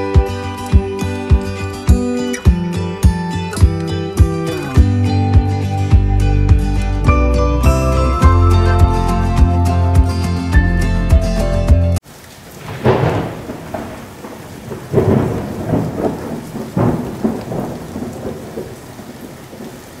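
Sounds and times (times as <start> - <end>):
heavy rain hissing: 12.0 - 20.0
rolls of thunder: 12.6 - 19.8.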